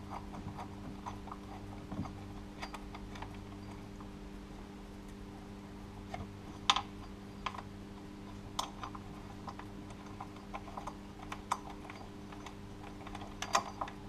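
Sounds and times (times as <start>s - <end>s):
faint steady hum: 0.0s - 14.0s
tools clicking on metal: 0.1s - 3.8s, 8.6s - 14.0s.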